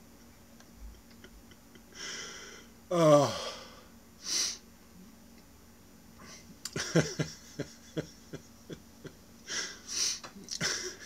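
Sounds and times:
man laughing: 0:00.6 - 0:02.1, 0:06.7 - 0:09.8, 0:10.5 - 0:11.0.

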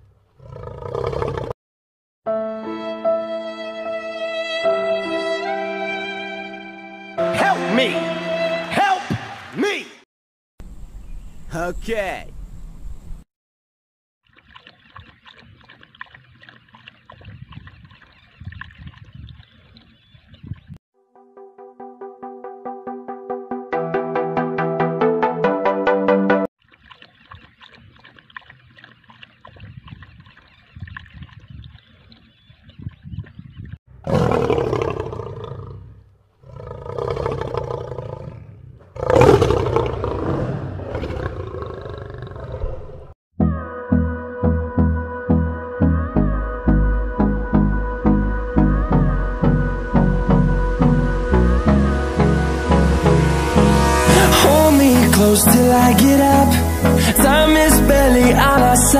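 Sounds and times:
water trickling into dish: 0:14.2 - 0:20.0, 0:26.6 - 0:32.3
big cat roaring: 0:34.0 - 0:43.1.

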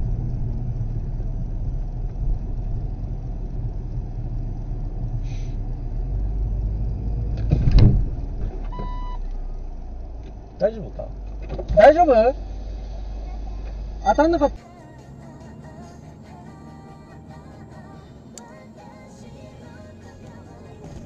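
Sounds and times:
car engine and road hum: 0:00.0 - 0:21.0
loud thump and rumble: 0:06.9 - 0:09.0, 0:11.2 - 0:11.8
short electronic beep: 0:08.7 - 0:09.3.

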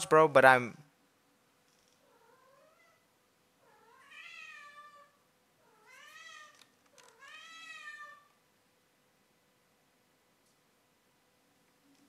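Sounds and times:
cat meowing: 0:02.0 - 0:08.4.

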